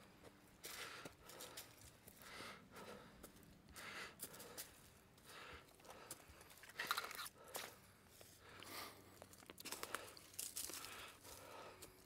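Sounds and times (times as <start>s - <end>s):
person breathing: 0.6s - 12.0s
footsteps crunching through dry leaves: 9.6s - 11.5s.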